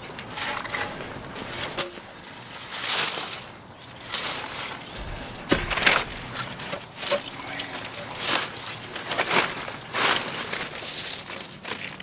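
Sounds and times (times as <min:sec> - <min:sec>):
twigs crunching underfoot: 0:00.9 - 0:12.0
log knocking: 0:05.0 - 0:07.9.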